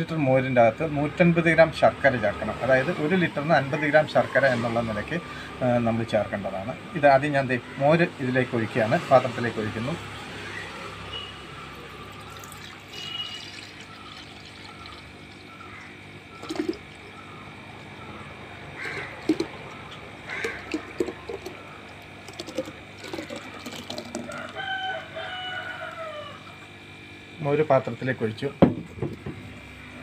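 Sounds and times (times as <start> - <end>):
liquid pouring into clay pot: 12.0 - 17.2, 18.8 - 24.5
crow-like falling call: 18.8 - 19.6, 20.2 - 21.8.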